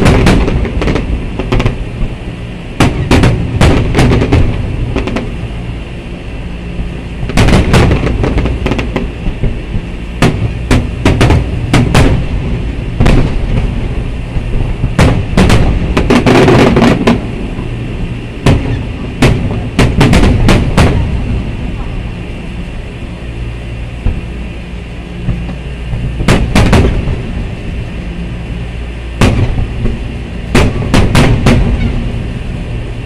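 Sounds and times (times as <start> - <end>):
steady low rumble: 0.0 - 33.0
firework shells bursting: 2.8 - 5.4, 7.2 - 9.6, 14.4 - 17.3, 18.4 - 21.3, 29.2 - 30.0, 30.6 - 31.9.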